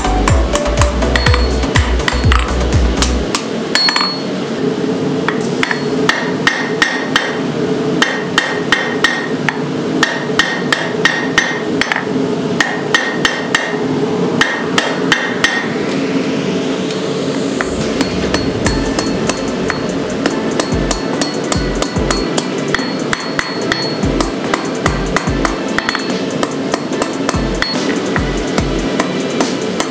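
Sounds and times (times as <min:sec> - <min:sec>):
hammer striking steel on anvil: 0:01.1 - 0:04.3, 0:05.3 - 0:07.4, 0:08.0 - 0:13.8, 0:14.4 - 0:15.8, 0:17.6 - 0:28.3.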